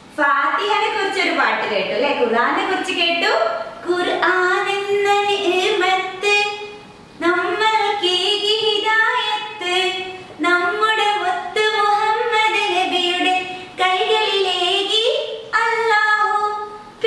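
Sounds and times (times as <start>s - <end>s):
woman singing: 3.8s - 16.8s.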